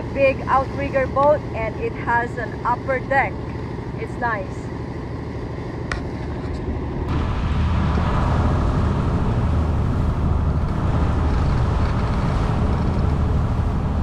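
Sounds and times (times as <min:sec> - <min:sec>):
boat engine droning: 0:00.0 - 0:14.0
rush of wind and water: 0:06.6 - 0:14.0.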